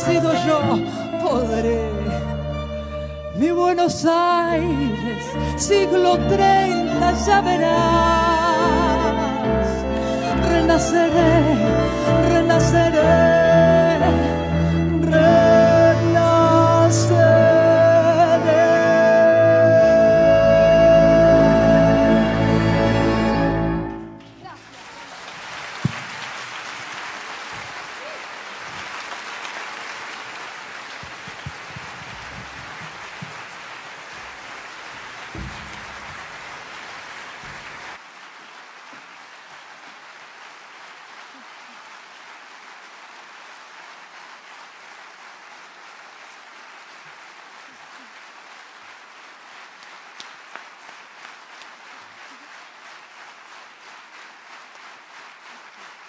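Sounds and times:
audience applauding: 23.8 - 56.0.

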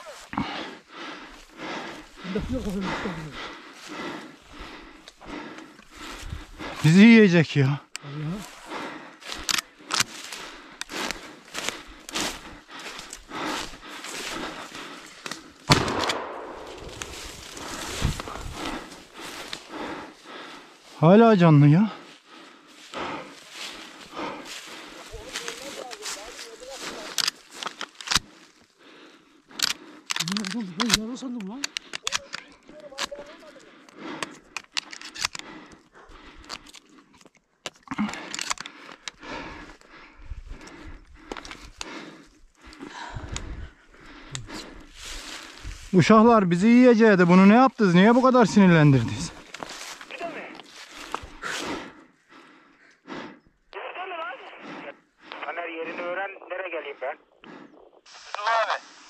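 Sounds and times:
dry leaves and twigs crunching: 9.2 - 20.9, 22.1 - 28.7, 44.7 - 46.0, 48.6 - 51.8
shotgun shot echoing: 15.7 - 17.1
footsteps crunching through leaves: 16.4 - 19.7, 23.4 - 27.6, 44.9 - 46.0, 49.4 - 51.4.

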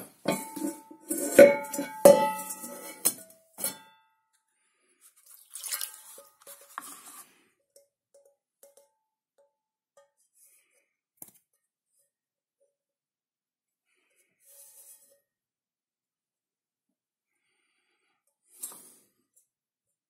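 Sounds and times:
saucepan clinking: 0.3 - 3.8.

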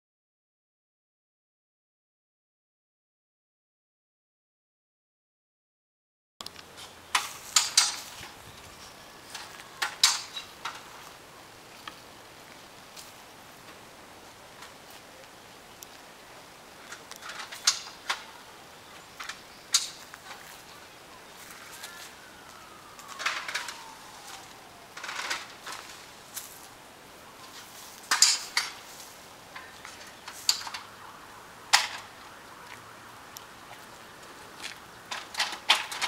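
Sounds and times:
faint falling whine: 17.3 - 27.8.

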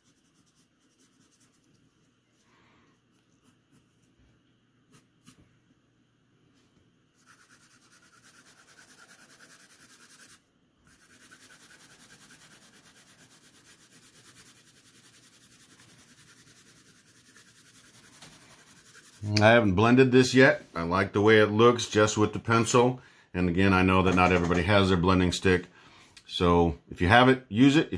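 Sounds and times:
pencil shading on paper: 7.2 - 19.3.

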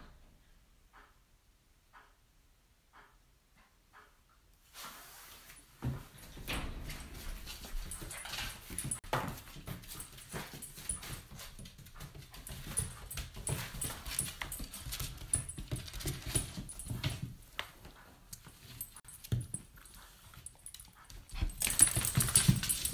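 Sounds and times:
pet bed scuffing on tiles: 4.6 - 6.4
puppy play noises: 7.1 - 22.9.

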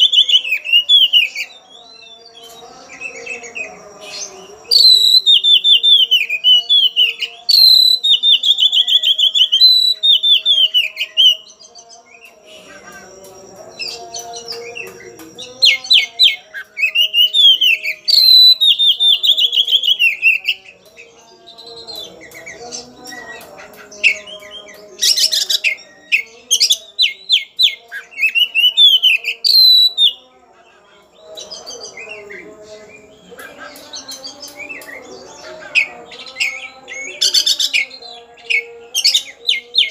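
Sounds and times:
bird singing whistles: 3.4 - 11.5, 12.2 - 20.6, 25.1 - 30.2.

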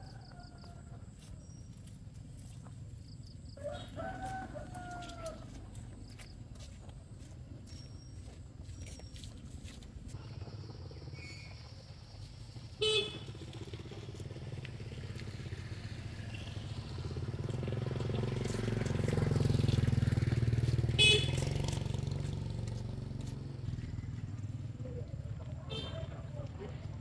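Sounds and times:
vehicle engine passing: 9.9 - 27.0
short horn honks: 12.8 - 13.4, 20.9 - 21.6, 25.7 - 26.1.

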